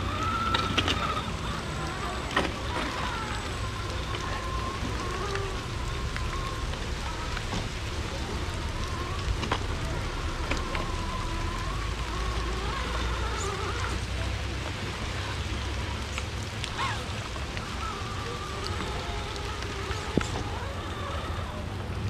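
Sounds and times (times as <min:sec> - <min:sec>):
rain falling: 0:00.0 - 0:22.0.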